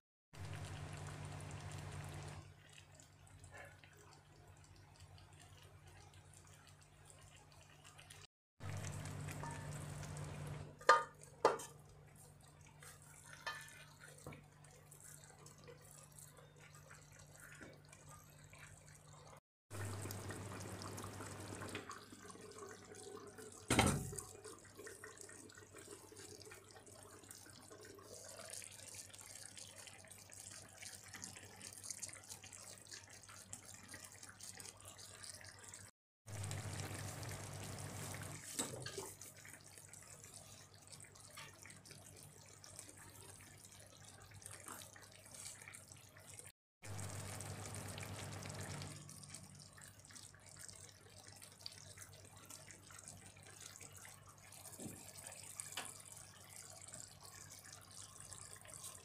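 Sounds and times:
pot lid clanking on skillet: 0:10.8 - 0:11.7.

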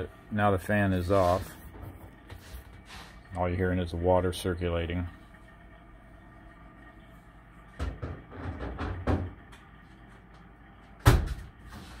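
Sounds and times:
boiler hum: 0:00.0 - 0:12.0
knocks and rattles: 0:07.8 - 0:09.4.

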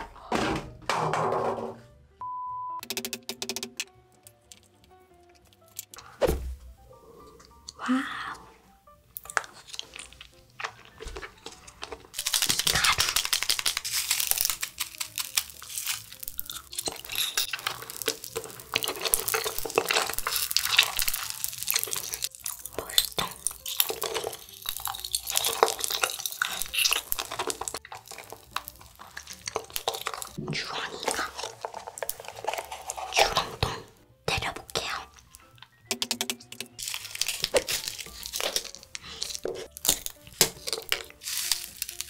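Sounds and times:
wet sucking on hard candy: 0:06.9 - 0:35.7, 0:36.8 - 0:42.0
plastic wrapper crinkling: 0:09.2 - 0:33.6, 0:36.7 - 0:42.0.

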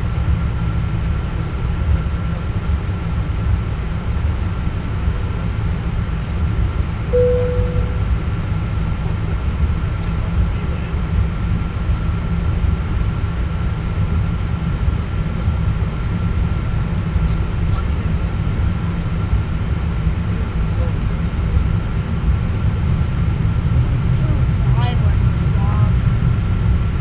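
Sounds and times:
low rumble of aircraft engines: 0:00.0 - 0:27.0
short tone: 0:07.1 - 0:08.1
thin steady high tone: 0:07.2 - 0:08.0.

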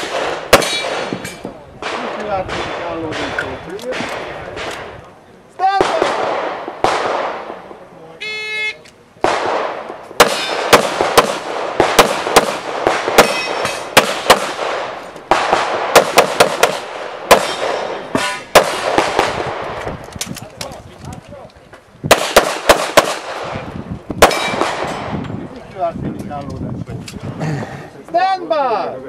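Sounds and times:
rapid handgun fire with echo: 0:00.0 - 0:04.9, 0:05.7 - 0:07.6, 0:09.2 - 0:19.8, 0:22.1 - 0:25.2.

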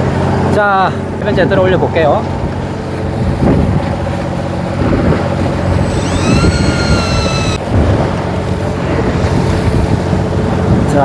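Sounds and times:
wind and water noise: 0:00.0 - 0:11.0
boat engine running: 0:02.2 - 0:10.8
high whine: 0:05.8 - 0:07.6.

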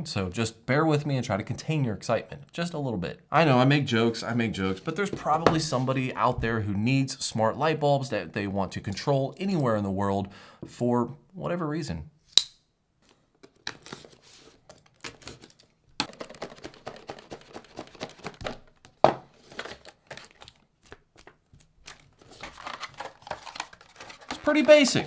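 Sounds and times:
packaging rustling and tearing: 0:13.4 - 0:25.0.

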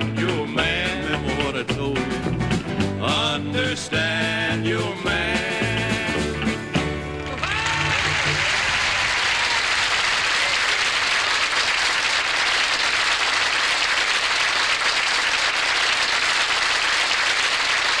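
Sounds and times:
audience applauding: 0:07.1 - 0:18.0.

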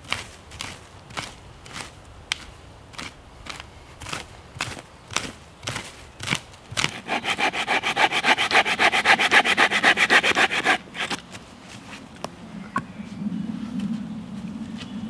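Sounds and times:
rasping strokes on dry wood: 0:06.8 - 0:11.2
scrapes and knocks: 0:06.8 - 0:11.2.

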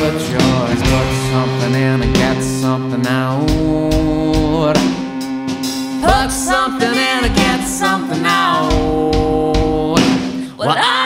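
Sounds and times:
person singing: 0:00.0 - 0:05.3, 0:05.9 - 0:11.0
band playing: 0:00.0 - 0:10.5.

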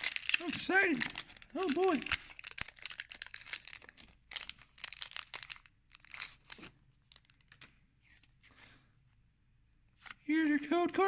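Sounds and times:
foil wrapper crinkling and tearing: 0:00.0 - 0:07.6.

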